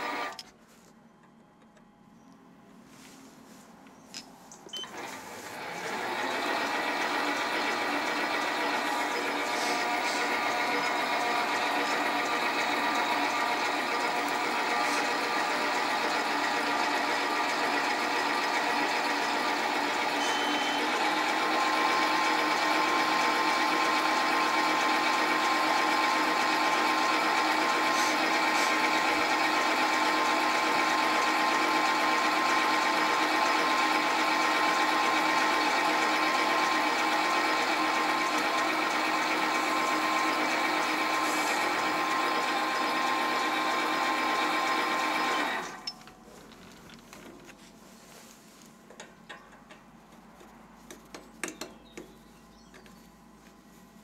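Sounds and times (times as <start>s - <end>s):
lathe machine whine: 0.0s - 0.4s, 4.8s - 46.1s.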